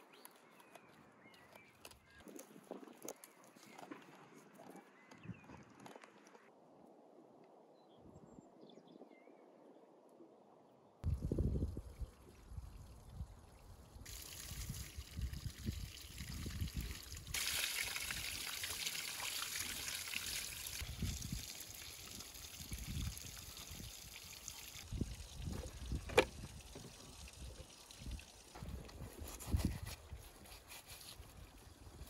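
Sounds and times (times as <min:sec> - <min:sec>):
stream trickling over stones: 0:11.0 - 0:32.0.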